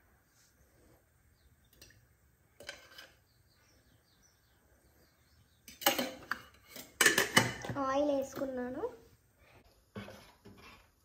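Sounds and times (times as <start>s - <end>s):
clatter of utensils and dishes: 2.6s - 3.2s, 5.7s - 7.8s.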